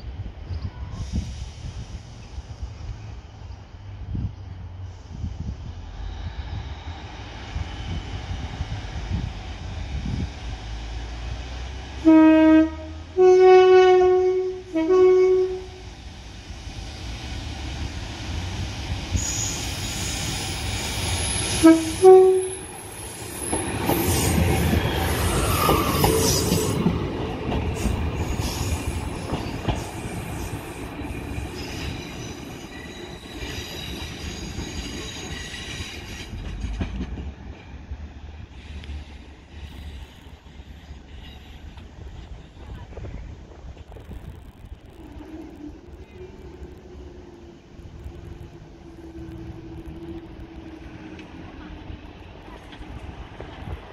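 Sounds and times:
train rumbling past: 0.0s - 53.9s
two-tone train horn: 12.0s - 15.9s, 21.5s - 22.7s.

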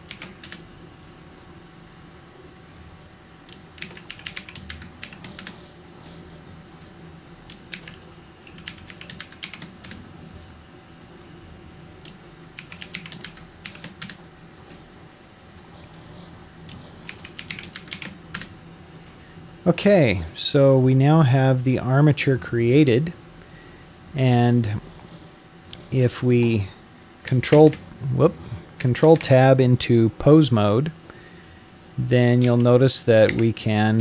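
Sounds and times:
typing on computer keyboard: 0.0s - 0.6s, 3.3s - 5.6s, 7.3s - 10.0s, 11.9s - 14.2s, 16.7s - 18.5s.

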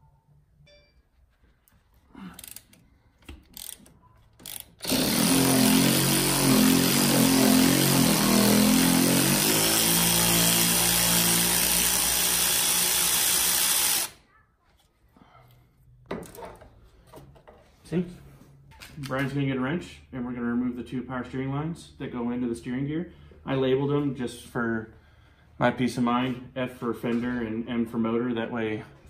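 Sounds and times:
electric ratchet whining: 3.6s - 14.2s.

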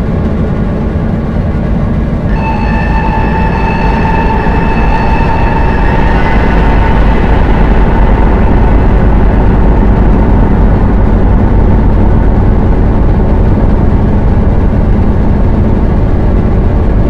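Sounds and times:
dark electronic drone: 0.0s - 17.0s
faint held tones: 2.3s - 14.0s.

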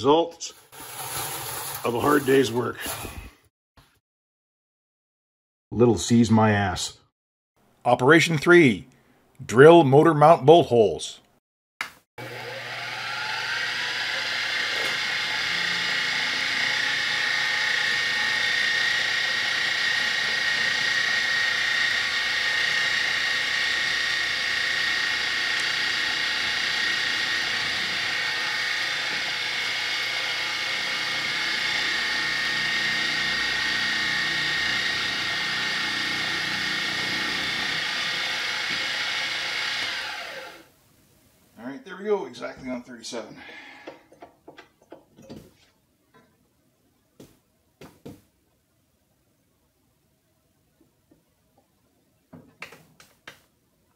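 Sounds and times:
drill boring into aluminium: 12.2s - 40.7s
milling machine spindle whining: 12.2s - 40.7s.

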